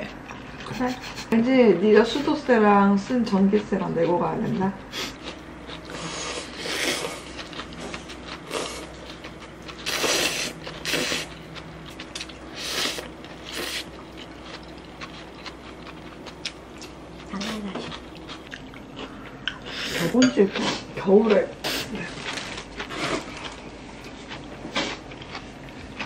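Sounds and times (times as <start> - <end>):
faint steady hum: 0.0 - 26.0.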